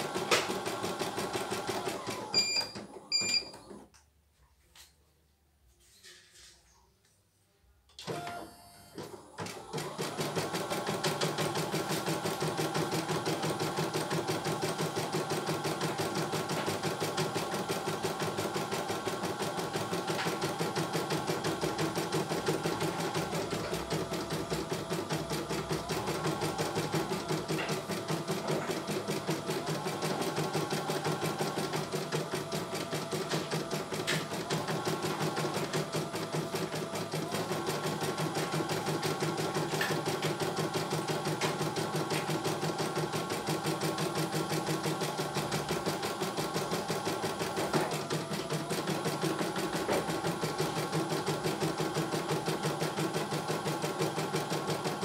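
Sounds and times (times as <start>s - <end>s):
embroidery machine stitching: 0.0s - 2.8s, 8.0s - 55.0s.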